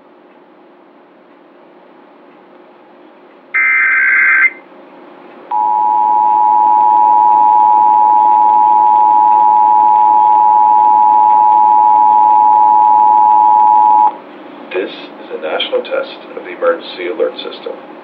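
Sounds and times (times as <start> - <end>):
digital data tones: 3.6 - 4.6
two-tone alert signal: 3.6 - 4.6.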